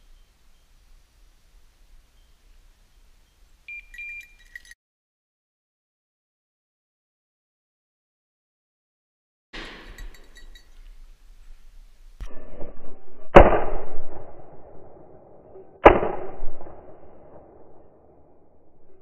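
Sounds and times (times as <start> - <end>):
shotgun shots echoing: 9.6 - 10.6, 13.4 - 15.0, 15.8 - 18.2
burst of noise: 12.2 - 17.9.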